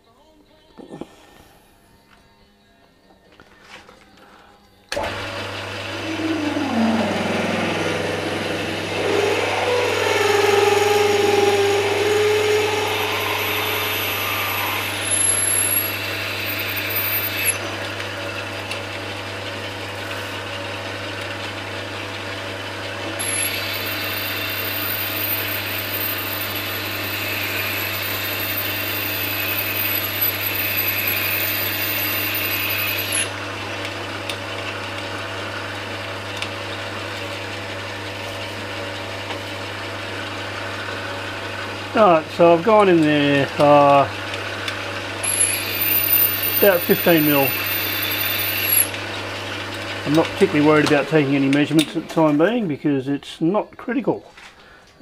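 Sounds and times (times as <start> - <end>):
lathe motor hum: 4.9 - 33.9, 42.8 - 51.0
high whine of drilling: 5.0 - 17.7, 23.1 - 33.4, 45.2 - 49.0.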